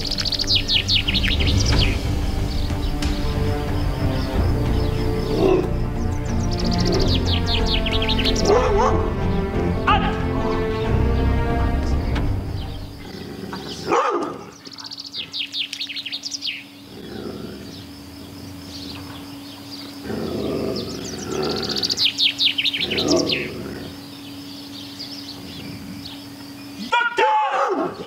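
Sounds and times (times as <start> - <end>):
songbirds chirping in high trills: 0.0 - 27.3
short dog barks: 13.9 - 14.4.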